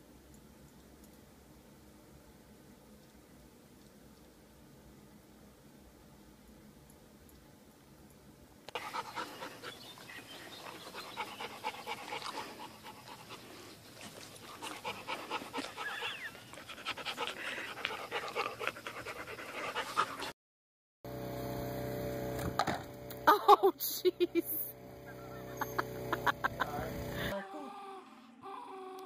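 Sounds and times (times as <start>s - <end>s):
dog panting and whimpering: 8.7s - 20.4s
dog whining: 15.6s - 16.5s
steady hum: 21.1s - 27.4s.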